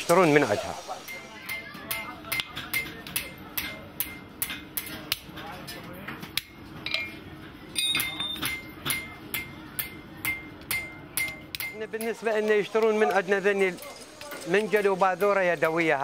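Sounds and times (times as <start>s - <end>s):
hammer ringing on anvil: 1.1s - 4.9s, 7.8s - 12.2s.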